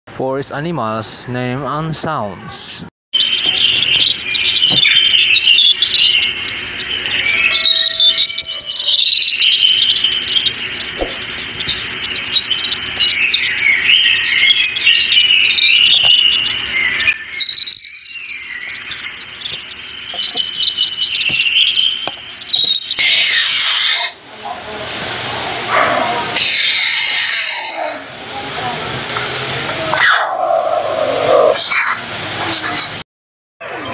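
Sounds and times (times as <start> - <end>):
songbirds chirping and trilling: 3.2 - 31.9
loud hiss: 23.0 - 29.9.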